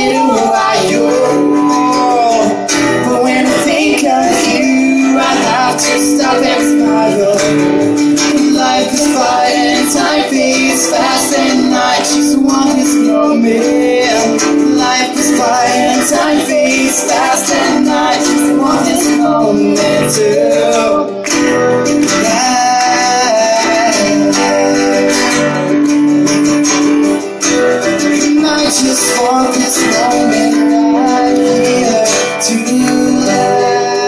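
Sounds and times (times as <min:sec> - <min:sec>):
voices singing in harmony: 0:00.0 - 0:21.2
acoustic guitars strumming: 0:00.0 - 0:34.0.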